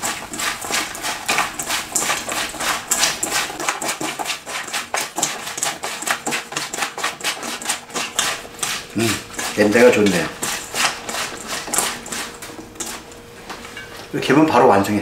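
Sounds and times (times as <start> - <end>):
wet squishes and rattles in bowl: 0.0 - 14.8.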